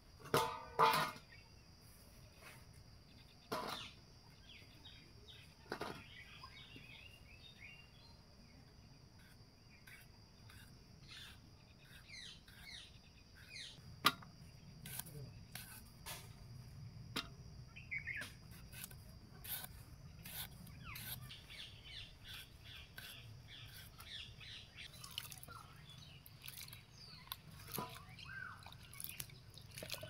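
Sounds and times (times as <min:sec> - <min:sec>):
metal kitchenware knocking and clinking: 0:00.2 - 0:01.2
small birds chirping: 0:01.3 - 0:16.0, 0:17.6 - 0:30.0.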